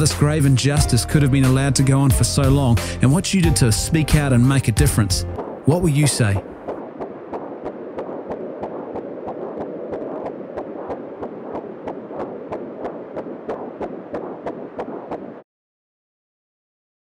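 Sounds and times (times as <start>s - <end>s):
fast steady ticking: 0.0s - 15.4s.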